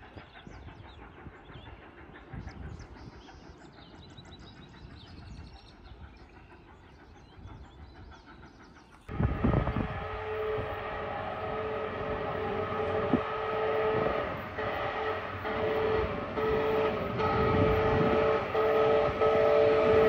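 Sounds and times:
steam locomotive rumble: 0.0s - 20.0s
steam whistle chord: 9.1s - 20.0s.

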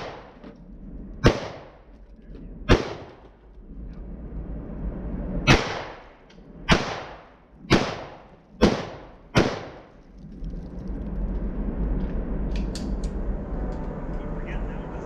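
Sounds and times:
gunshots with echo: 0.0s - 0.4s, 1.2s - 1.8s, 2.7s - 3.2s, 5.5s - 6.1s, 6.7s - 9.9s.

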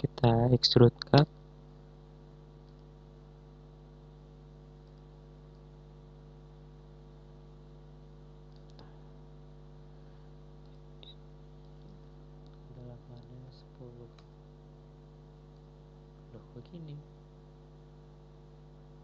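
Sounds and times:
electrical mains hum: 0.0s - 19.0s
faint computer mouse clicks: 2.6s - 2.9s, 4.8s - 5.7s, 8.5s - 8.9s.

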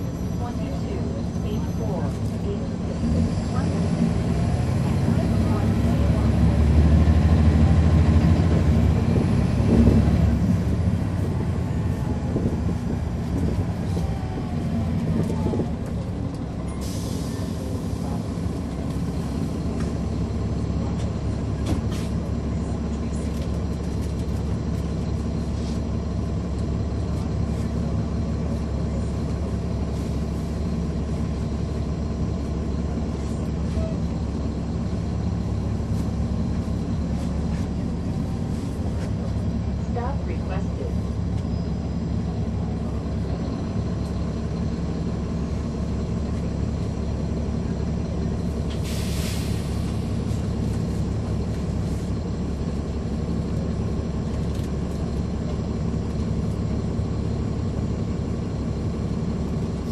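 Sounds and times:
bus diesel engine running: 0.0s - 59.9s
air hiss burst: 48.8s - 49.8s.

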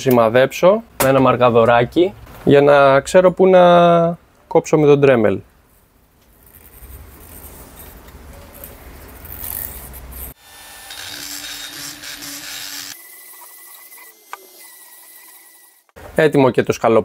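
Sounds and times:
scratchy rubbing handling noise: 6.3s - 10.4s
rotary tool grinding metal: 9.2s - 15.9s.

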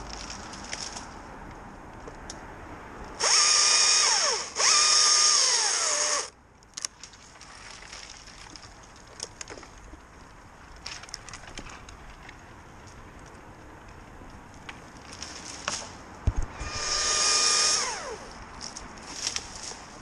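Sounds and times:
power tool motor whine: 3.2s - 6.3s, 16.5s - 18.3s.

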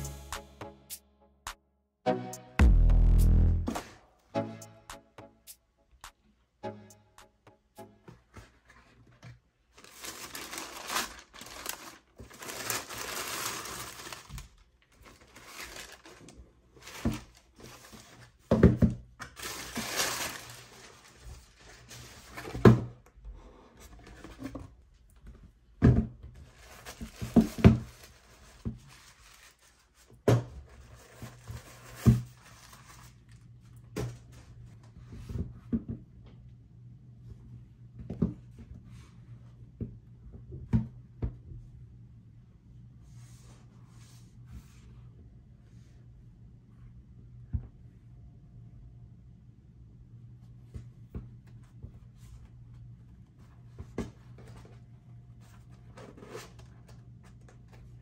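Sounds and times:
paper rustling and crinkling: 8.4s - 18.4s, 19.3s - 22.8s, 26.4s - 34.5s.

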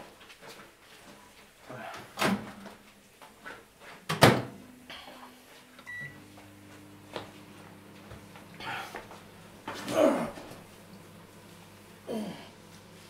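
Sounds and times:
low electric hum: 4.2s - 13.0s.

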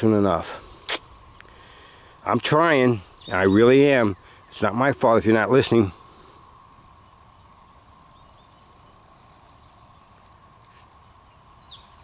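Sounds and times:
faint bird chirps: 0.9s - 12.0s.

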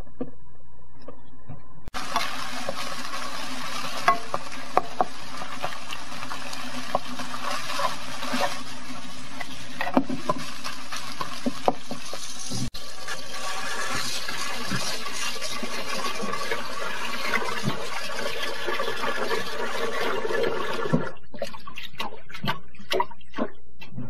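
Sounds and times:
meat sizzling in a pan: 2.0s - 19.6s
spatula scraping a pan: 2.0s - 23.4s.

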